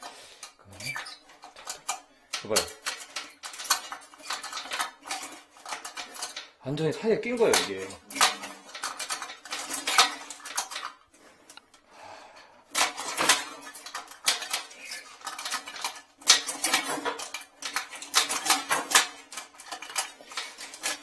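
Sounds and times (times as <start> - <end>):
plastic clinking against porcelain: 12.7 - 21.0.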